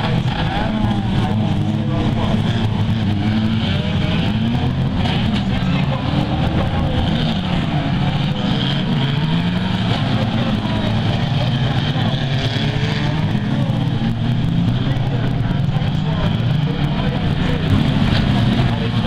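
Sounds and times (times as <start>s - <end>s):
racing car engines revving: 0.0s - 19.0s.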